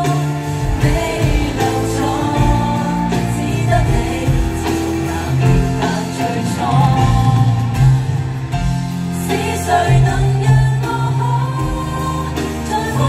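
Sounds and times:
drum hits: 0.0s - 9.3s
bass line: 0.0s - 13.0s
voices singing melody: 0.0s - 13.0s.

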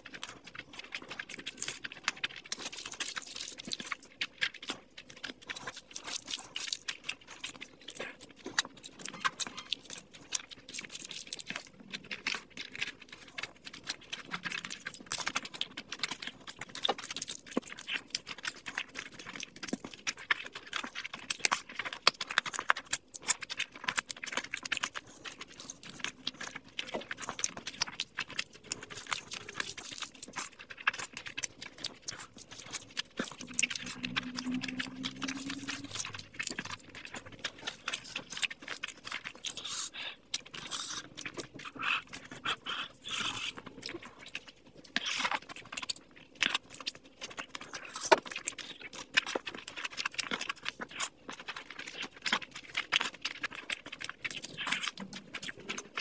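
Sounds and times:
wet chewing and lip smacking: 0.0s - 56.0s
person humming: 33.3s - 36.4s.

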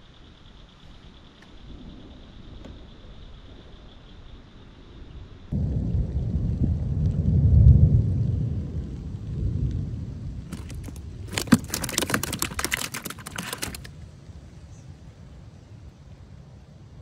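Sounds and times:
low rumble: 0.8s - 11.3s
fish flopping on plastic deck: 10.4s - 13.9s.

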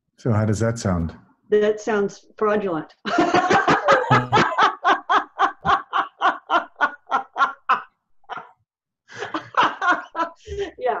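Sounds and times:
woman laughing hard: 3.1s - 11.0s.

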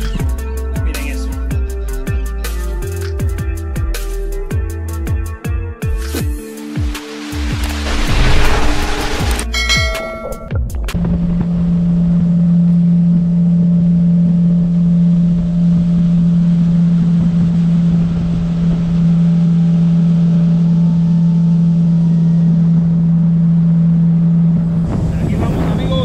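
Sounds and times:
water noise: 6.5s - 22.0s
wind: 6.6s - 26.0s
outboard motor running: 11.0s - 25.1s.

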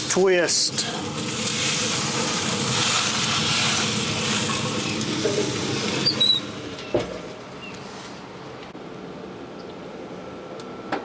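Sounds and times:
steak sizzling on a grill: 0.0s - 6.9s.

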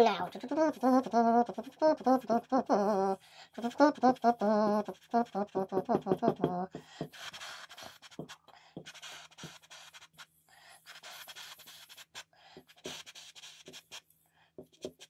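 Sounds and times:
marker scratching on whiteboard: 4.0s - 15.0s.

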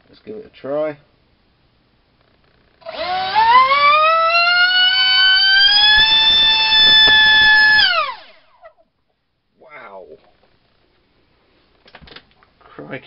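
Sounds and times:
electric motor high-pitched whine: 2.8s - 8.5s.

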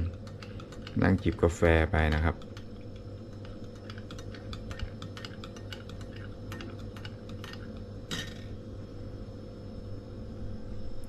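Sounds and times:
steady low hum: 0.0s - 11.0s
spoon clinking coffee cup: 3.3s - 8.4s.

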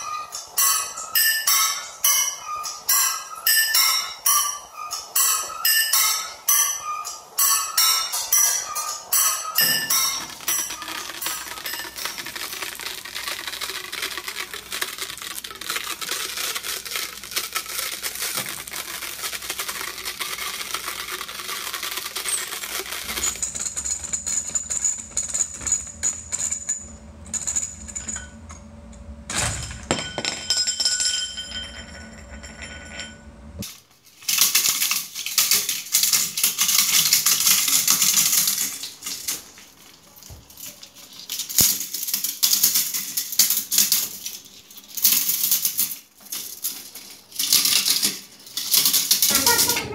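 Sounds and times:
gear-driven machine rattling: 0.0s - 30.0s, 30.9s - 49.9s.

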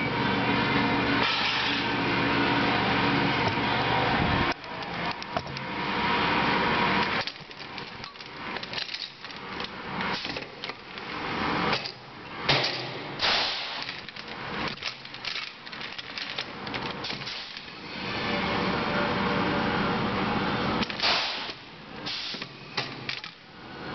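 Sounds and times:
loud air blasts: 1.2s - 2.0s, 13.1s - 13.8s, 21.0s - 22.6s
air hissing: 21.0s - 22.6s.

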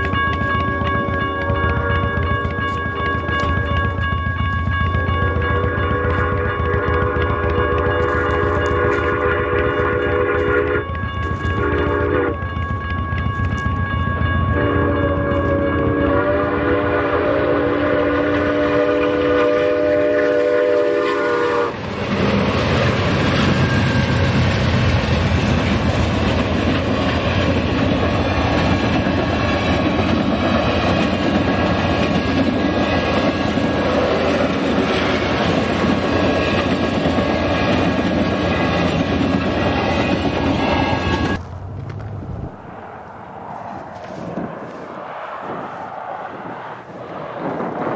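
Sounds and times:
wheels clacking over rails: 0.0s - 9.9s, 21.7s - 41.5s
crossing bell ringing: 0.0s - 21.7s, 22.7s - 24.6s, 25.6s - 41.5s
steam locomotive chime whistle: 0.0s - 21.8s, 39.6s - 41.4s
train rushing past: 0.0s - 47.9s.

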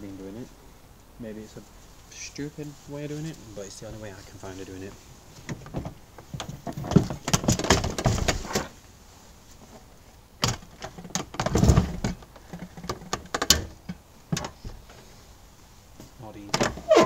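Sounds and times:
metal frame clattering and knocking: 5.5s - 8.7s, 10.4s - 14.8s.

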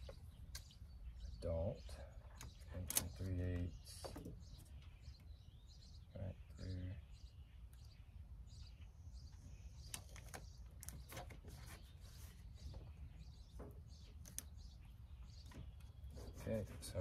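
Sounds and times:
faint clicks and rustles: 9.3s - 16.9s.

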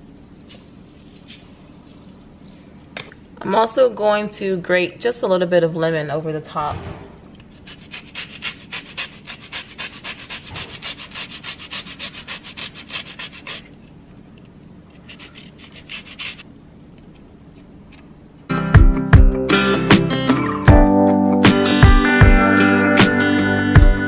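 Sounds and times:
grater rasping: 7.5s - 13.8s, 14.9s - 16.4s.

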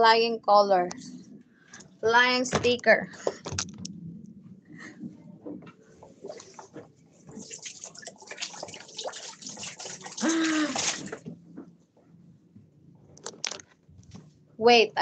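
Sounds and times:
water splashing and dripping: 7.3s - 11.3s.

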